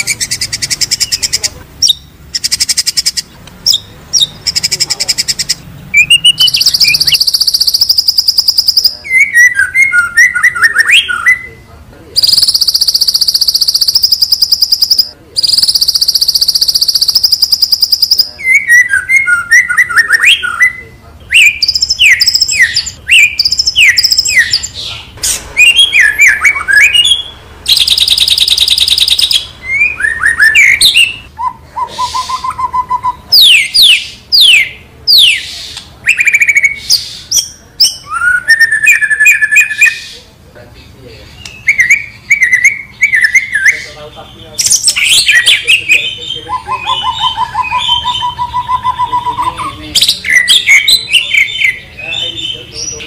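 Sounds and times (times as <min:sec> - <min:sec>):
bird singing whistled phrases: 0:06.0 - 0:11.6, 0:12.2 - 0:24.7, 0:25.6 - 0:40.2, 0:41.4 - 0:44.0, 0:44.6 - 0:53.0
high rattling trill: 0:12.2 - 0:18.3.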